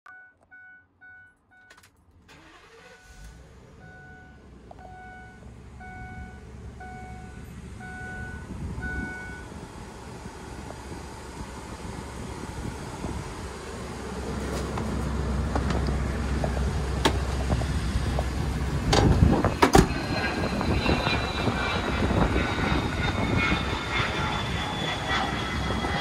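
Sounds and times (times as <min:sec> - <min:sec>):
dashboard warning chime beeping: 0:00.1 - 0:01.9, 0:02.5 - 0:09.5
truck engine idling: 0:01.0 - 0:22.2.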